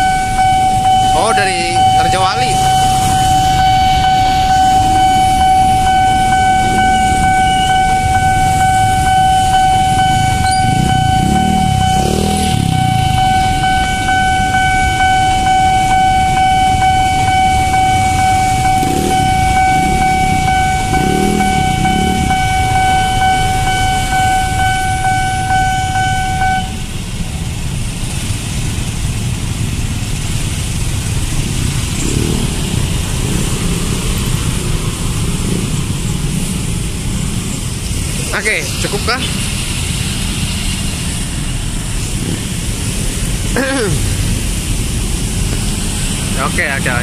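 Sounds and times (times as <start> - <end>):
level-crossing alarm tone: 0.0 - 26.9
rumble of motorcycles and cars: 0.0 - 47.0.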